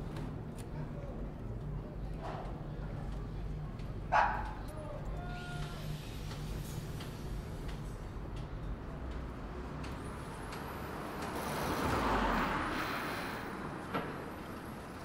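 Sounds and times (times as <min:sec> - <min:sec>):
low traffic rumble: 0:00.0 - 0:15.0
vehicles passing: 0:08.2 - 0:15.0.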